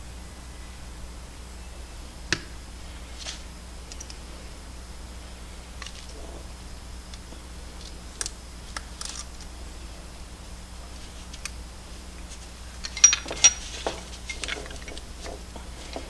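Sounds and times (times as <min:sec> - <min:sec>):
metal parts clicking and clinking: 0:12.6 - 0:16.0.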